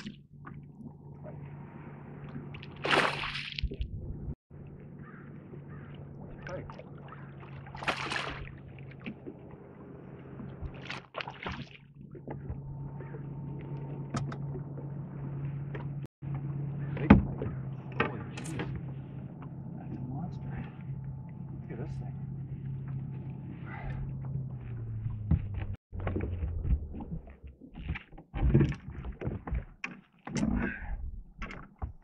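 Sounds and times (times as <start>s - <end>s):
fish thrashing water splashing: 2.6s - 3.8s, 7.0s - 9.4s, 10.7s - 12.0s
steady low hum: 11.9s - 25.8s.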